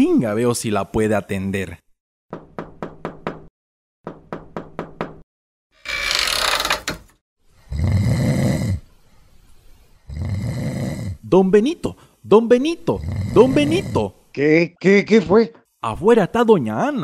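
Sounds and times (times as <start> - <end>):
knocks on a door: 2.3 - 3.5, 4.1 - 5.2
door opening rush: 5.8 - 7.2
man snoring loudly: 7.6 - 8.9, 10.0 - 11.3, 12.9 - 14.1.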